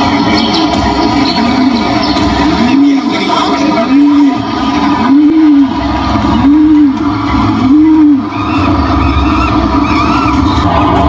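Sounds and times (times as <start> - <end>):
siren-like tone: 4.8 - 11.0.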